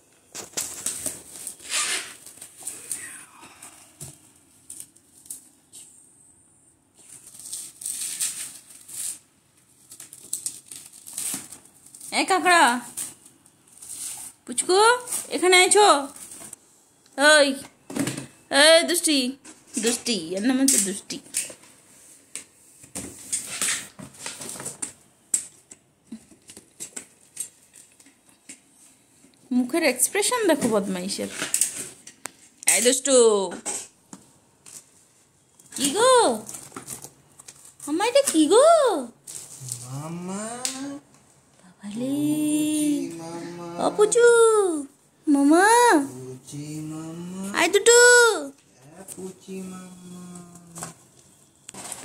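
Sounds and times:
bubble wrap crinkling and rustling: 0.1s - 3.1s, 4.1s - 5.9s, 6.9s - 16.6s, 21.1s - 29.3s, 34.2s - 41.2s, 49.1s - 52.0s.

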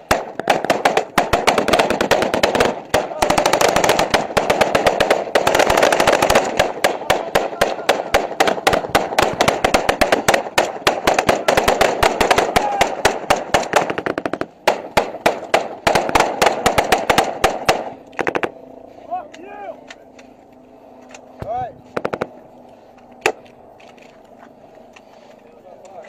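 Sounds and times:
small-arms gunfire: 0.0s - 18.6s, 21.9s - 22.4s.

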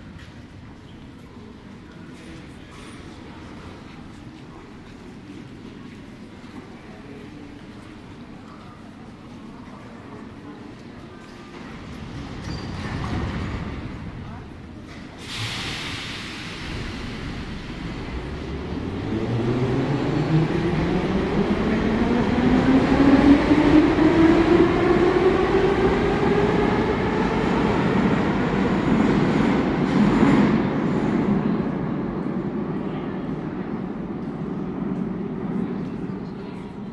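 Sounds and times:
train wheels rumbling on rails: 0.0s - 36.9s.

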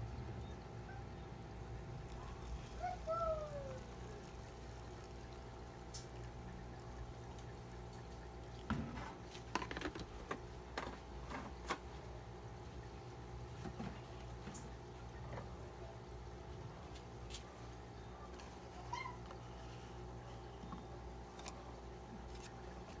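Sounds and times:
steady low hum: 0.0s - 23.0s
hot water pouring: 1.5s - 11.9s.

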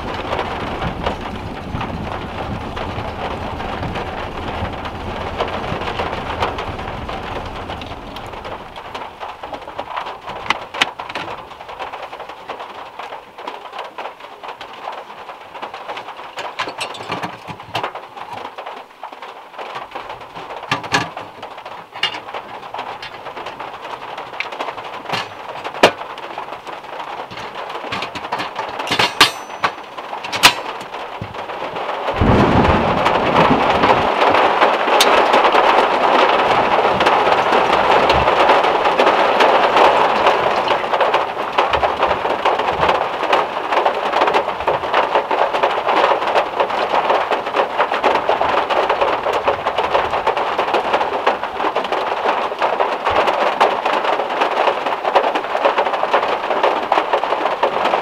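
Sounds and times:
rain on a metal roof: 0.0s - 58.0s
sharp clicks and knocks: 7.7s - 12.0s, 15.8s - 18.8s, 19.7s - 32.4s.

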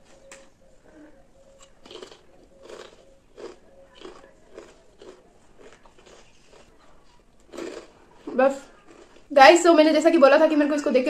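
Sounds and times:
person chewing crunchy chips: 1.6s - 9.3s.

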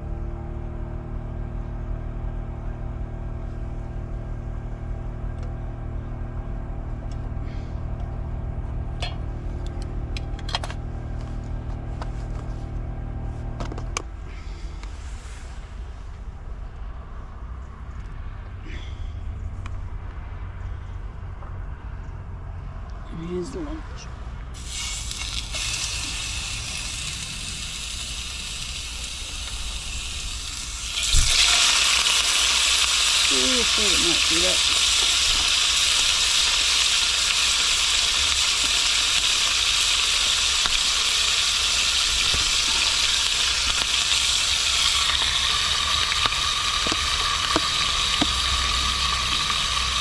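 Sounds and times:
engine humming: 0.0s - 50.0s
steaks sizzling in a frying pan: 24.6s - 50.0s.

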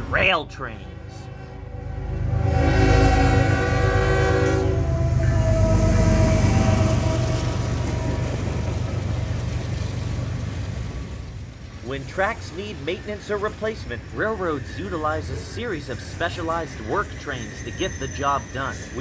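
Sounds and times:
train rumble and wheel noise: 0.0s - 19.0s
locomotive horn blast: 0.9s - 8.9s.

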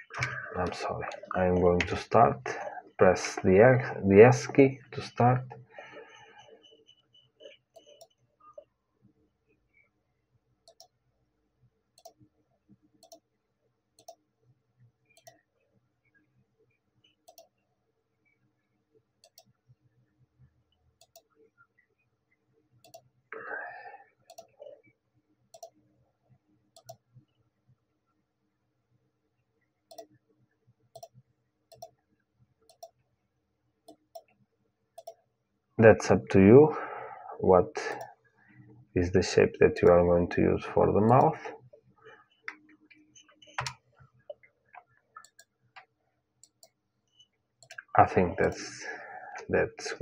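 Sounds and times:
computer mouse button clicking: 17.3s - 17.5s.

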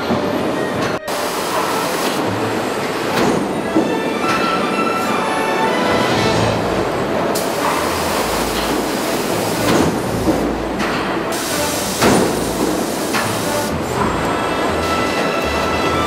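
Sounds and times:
industrial rumble and hiss: 0.0s - 16.0s.

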